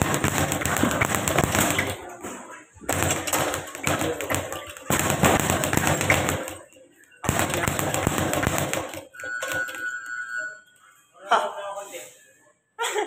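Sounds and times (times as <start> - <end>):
speed bag punched rapidly: 0.0 - 2.1, 2.8 - 9.8.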